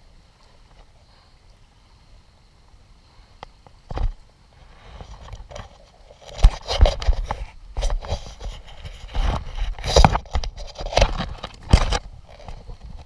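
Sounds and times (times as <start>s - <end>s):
camera thumping against body: 3.9s - 4.2s, 5.0s - 13.0s.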